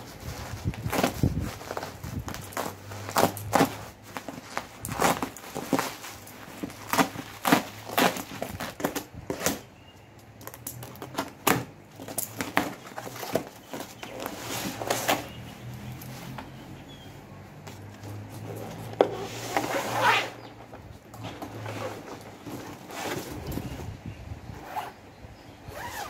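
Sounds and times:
bubble wrap crackling: 0.0 - 9.7.

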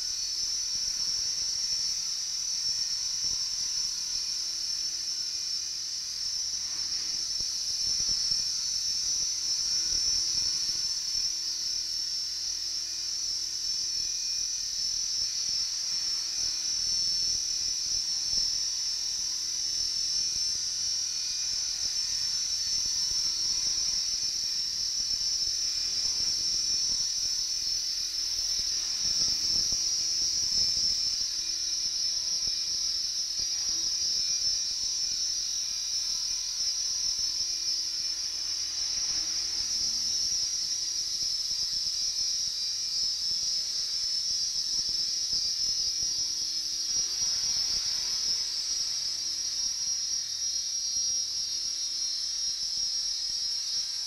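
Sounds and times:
rc helicopter motor whine: 0.0 - 54.0.

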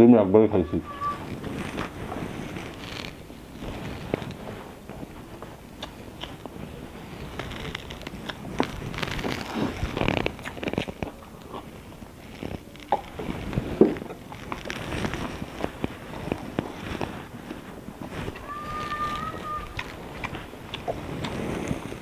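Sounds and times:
man chewing: 1.2 - 22.0.

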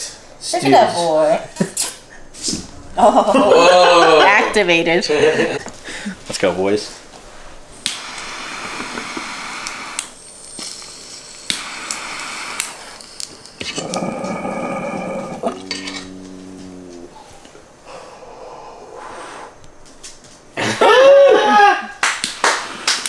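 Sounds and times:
water bubbling in a bong: 13.6 - 16.1.

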